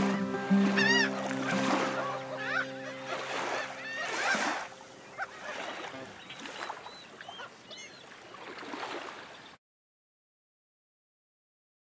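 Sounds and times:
acoustic guitar chord ringing: 0.0s - 5.1s
gulls calling: 0.0s - 9.6s.

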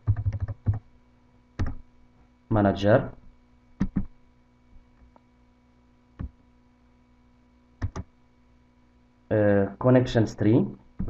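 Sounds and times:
faint steady hum: 0.0s - 11.0s
keyboard and mouse clicks: 1.6s - 1.8s, 3.8s - 4.1s, 7.8s - 8.1s.

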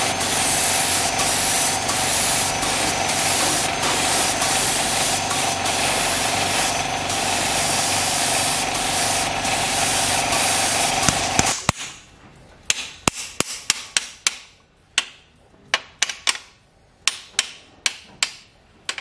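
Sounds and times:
spray gun air hissing: 0.0s - 11.6s.

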